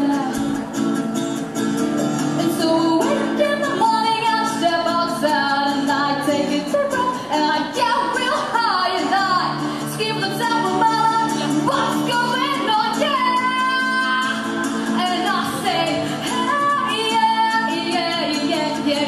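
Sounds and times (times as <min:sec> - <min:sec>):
woman singing: 0:00.0 - 0:00.6, 0:02.4 - 0:19.0
strummed acoustic guitar: 0:00.0 - 0:19.0.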